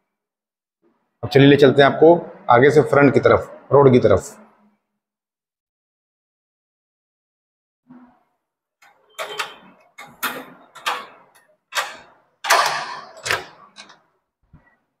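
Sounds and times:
door bolt and latch clacking: 0:08.8 - 0:14.0.

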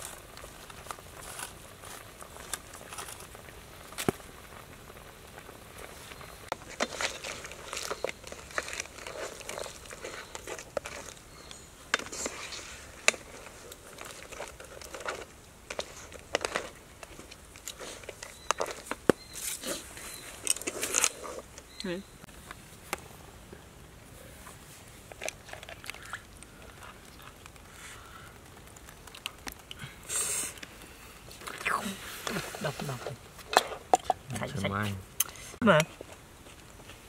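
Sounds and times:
light cooking crackle: 0:00.0 - 0:37.0.

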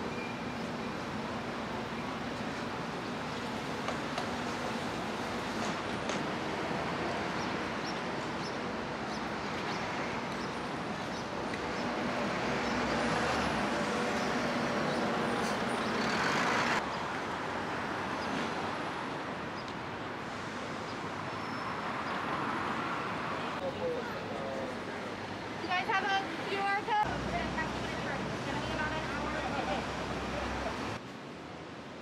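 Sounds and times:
city street traffic: 0:00.0 - 0:32.0
bus passing close by: 0:04.4 - 0:16.8.

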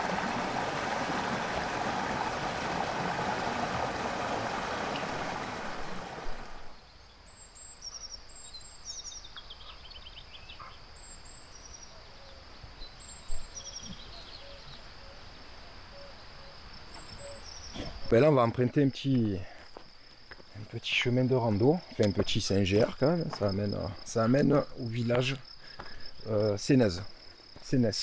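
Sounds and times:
river water rushing: 0:00.0 - 0:06.8
insect drone: 0:06.5 - 0:28.0
small birds chirping: 0:06.8 - 0:15.2, 0:16.0 - 0:18.1.

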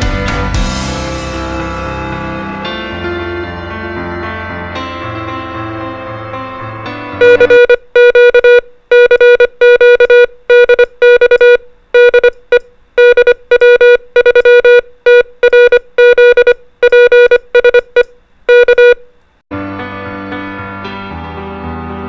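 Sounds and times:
morse code beeps: 0:07.2 - 0:19.1.

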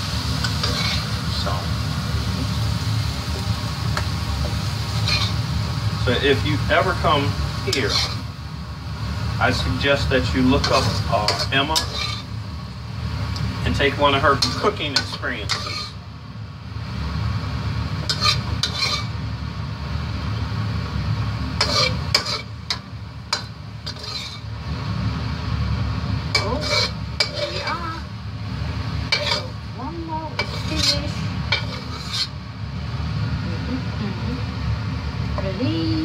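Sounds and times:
metal spatula scraping a wok: 0:00.3 - 0:01.2, 0:04.8 - 0:05.5, 0:06.2 - 0:08.3, 0:09.5 - 0:12.4, 0:13.7 - 0:16.0, 0:18.0 - 0:19.2, 0:21.5 - 0:24.6, 0:26.3 - 0:28.0, 0:29.0 - 0:29.7, 0:30.3 - 0:32.4.

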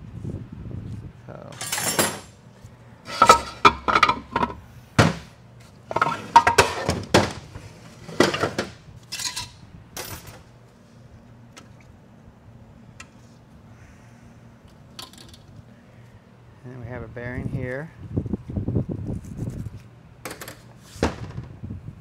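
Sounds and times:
metal parts clinking and clanking: 0:01.5 - 0:02.4, 0:03.1 - 0:04.6, 0:05.9 - 0:07.2, 0:08.1 - 0:10.4, 0:15.0 - 0:15.5.

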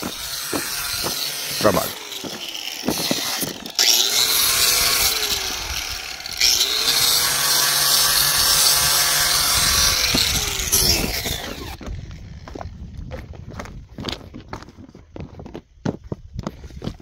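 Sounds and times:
electric sander-grinder running: 0:00.0 - 0:12.7.

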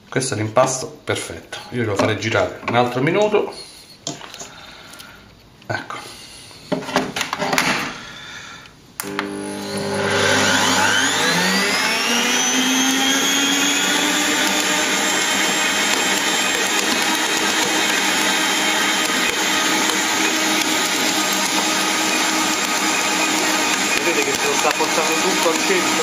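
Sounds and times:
stand mixer motor whine: 0:09.0 - 0:26.0.

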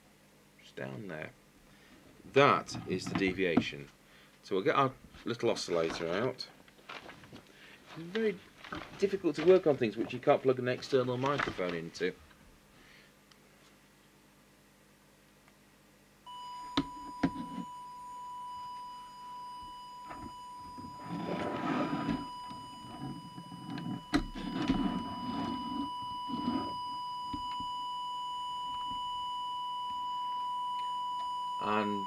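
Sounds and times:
steady test tone: 0:16.3 - 0:32.0.

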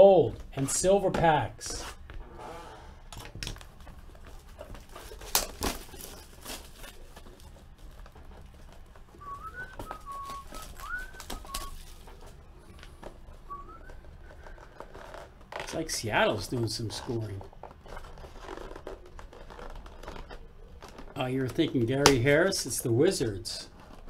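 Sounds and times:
soft whistled notes: 0:09.2 - 0:12.6, 0:13.4 - 0:14.4.

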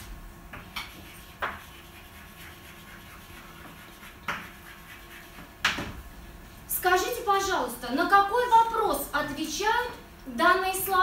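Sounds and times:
chalk tapping on board: 0:00.5 - 0:05.9
chalk scratching on blackboard: 0:00.7 - 0:05.6.

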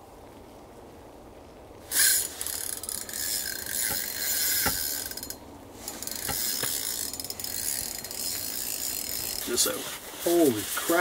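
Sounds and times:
fishing reel ratcheting whir: 0:01.9 - 0:09.6.

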